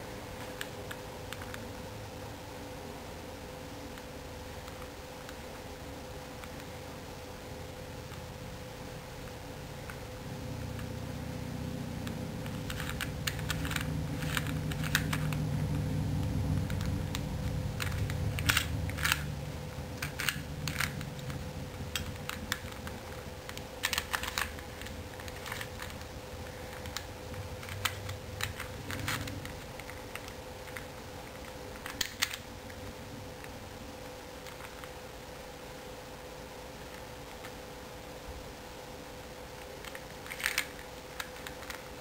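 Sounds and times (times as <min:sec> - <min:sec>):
low steady hum: 0:00.0 - 0:42.0
plastic puzzle clicking: 0:12.0 - 0:15.8, 0:16.6 - 0:19.3, 0:20.0 - 0:32.5, 0:39.6 - 0:42.0.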